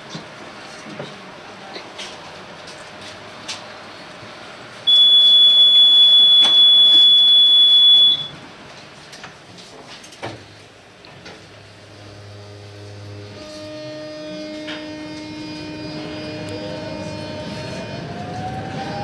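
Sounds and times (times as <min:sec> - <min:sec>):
low tram hum: 0:00.0 - 0:19.0
high warning beep: 0:04.9 - 0:08.4.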